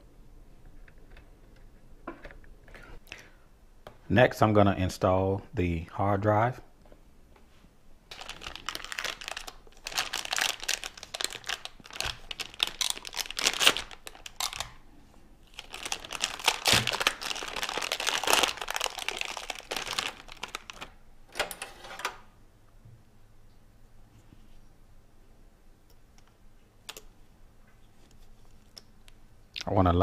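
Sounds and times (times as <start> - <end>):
plastic packaging crinkling: 8.1 - 21.0.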